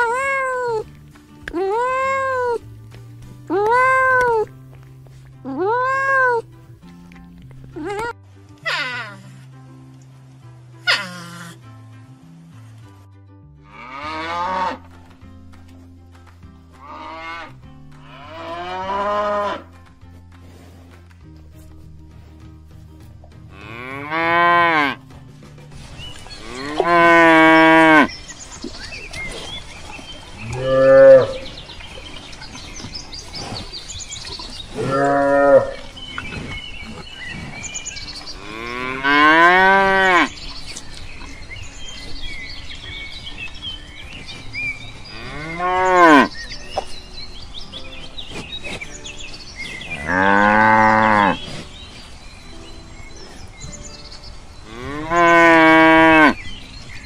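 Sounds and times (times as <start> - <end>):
cattle mooing: 26.4 - 28.1, 30.4 - 31.6, 34.7 - 36.0, 38.4 - 40.3, 50.0 - 51.5, 54.7 - 56.4.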